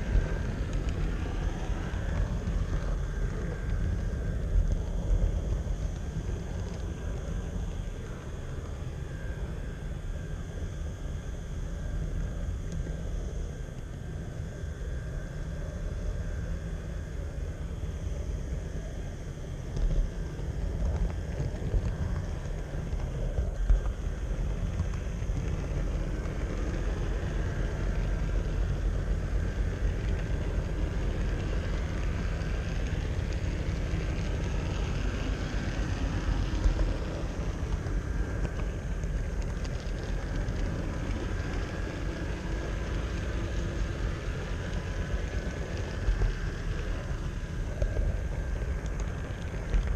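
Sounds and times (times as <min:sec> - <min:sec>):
model train rumbling on track: 0:00.0 - 0:09.4, 0:20.2 - 0:49.9.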